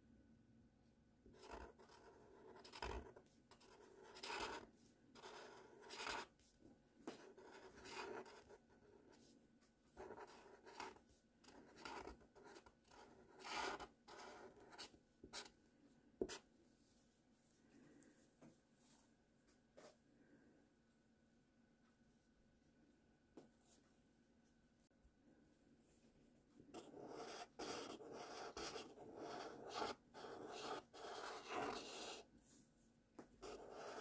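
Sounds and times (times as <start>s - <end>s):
marker scratching on paper: 1.3s - 6.4s, 7.0s - 9.3s, 10.0s - 15.5s, 26.7s - 32.3s, 33.4s - 34.0s.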